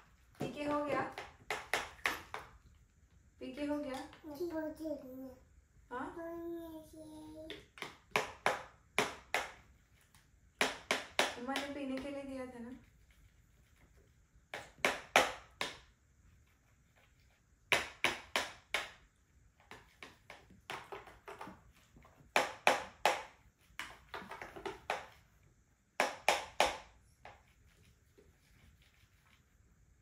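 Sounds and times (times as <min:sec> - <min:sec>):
plastic straws knocking on trays: 0:00.4 - 0:02.6, 0:07.4 - 0:09.6, 0:10.6 - 0:12.3, 0:14.5 - 0:15.9, 0:17.7 - 0:25.3, 0:25.9 - 0:27.4.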